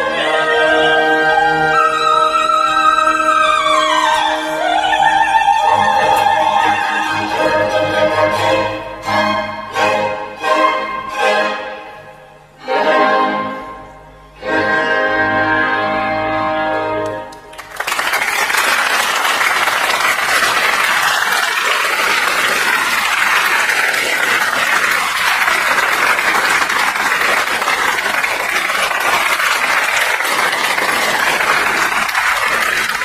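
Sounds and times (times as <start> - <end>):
audience applauding: 17.0 - 33.0.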